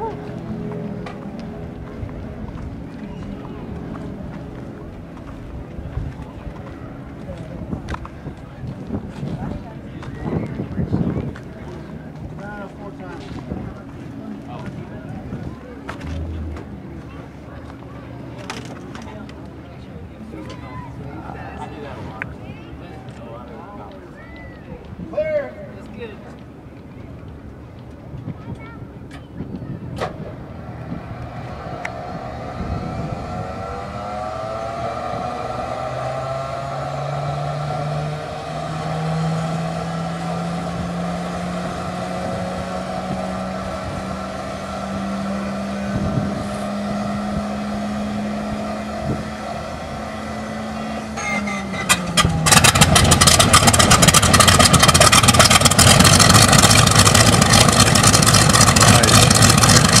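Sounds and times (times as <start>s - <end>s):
radial aircraft engine running: 0.0s - 22.8s, 28.9s - 60.0s
loud rushing noise: 15.9s - 17.5s, 30.2s - 58.0s.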